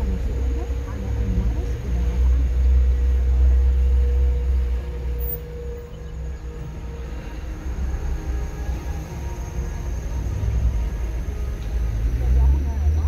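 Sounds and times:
car driving rumble: 0.0s - 13.0s
faint steady whine: 0.0s - 13.0s.

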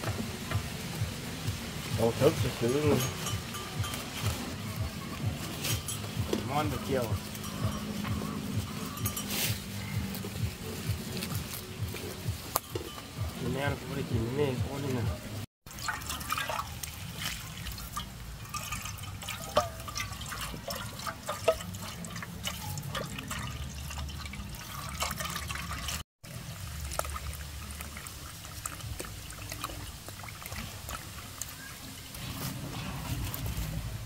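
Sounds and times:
water pouring from hose into metal pot: 0.0s - 7.6s, 15.7s - 34.0s.

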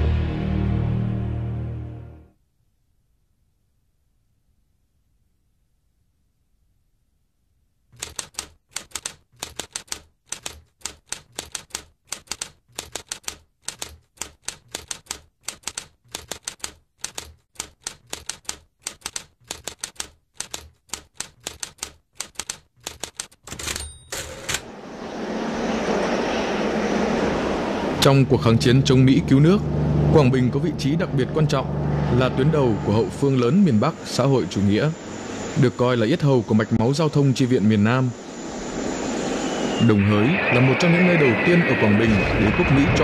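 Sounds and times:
typewriter clatter: 8.0s - 24.6s
typewriter keys clacking: 8.0s - 24.6s.

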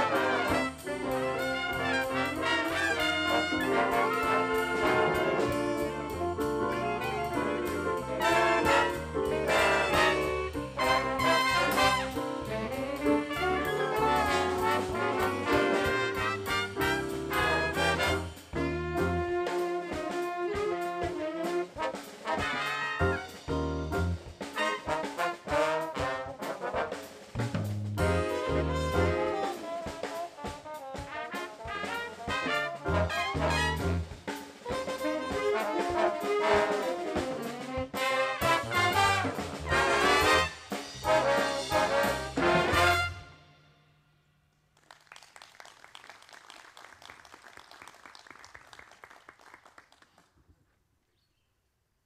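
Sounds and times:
jazz orchestra with brass: 0.0s - 44.3s.

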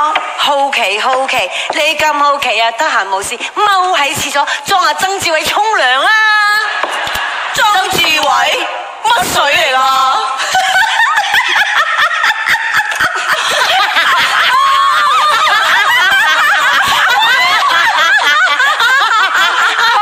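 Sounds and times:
women laughing loudly: 10.4s - 20.0s.

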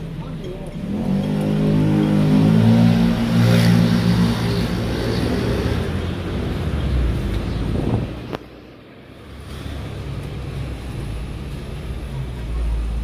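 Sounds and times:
road noise rumble: 0.0s - 13.0s
vehicle engine humming: 0.0s - 13.0s.

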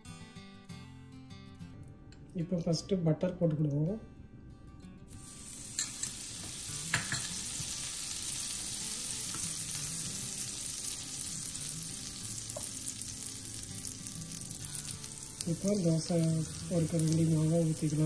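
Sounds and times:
butter sizzling on hot iron: 5.1s - 18.0s.

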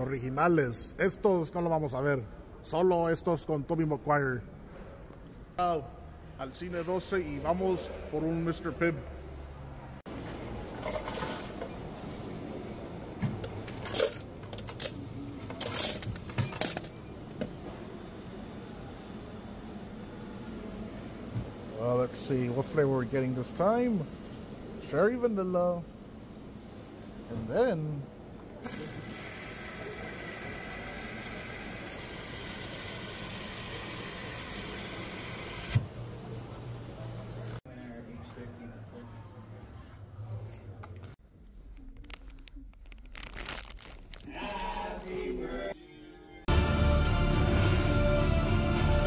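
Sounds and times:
ice cubes clattering into cup: 42.8s - 44.3s.

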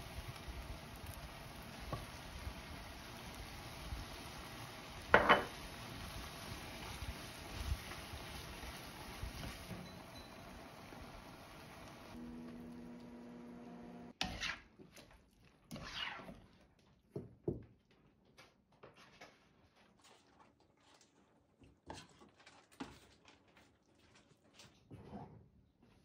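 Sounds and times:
metal spoon scraping in a wok: 14.2s - 14.7s.

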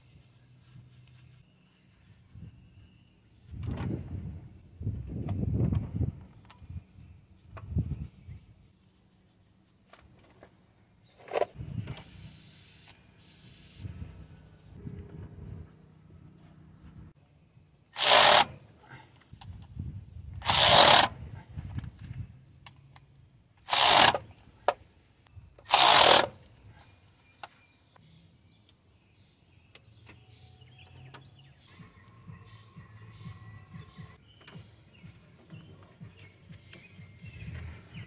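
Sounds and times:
power tool bursts: 18.0s - 18.6s, 20.4s - 21.2s, 23.7s - 24.2s, 25.7s - 26.4s.

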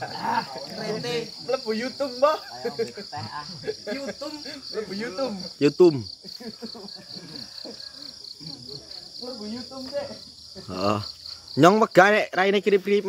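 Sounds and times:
insects chirping: 0.0s - 13.0s
men talking: 0.0s - 13.0s.

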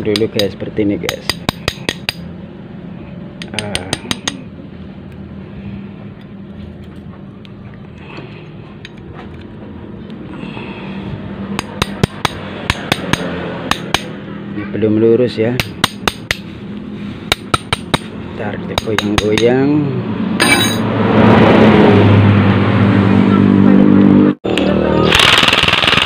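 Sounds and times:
steady low hum: 0.0s - 21.2s
pneumatic impact wrench hammering: 25.1s - 26.0s.

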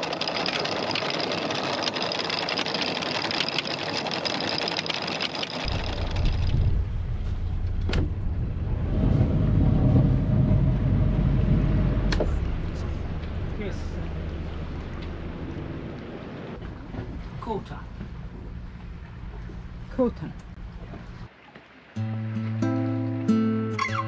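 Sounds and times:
anchor chain clattering: 0.0s - 6.7s
deep low rumble: 5.6s - 21.3s.

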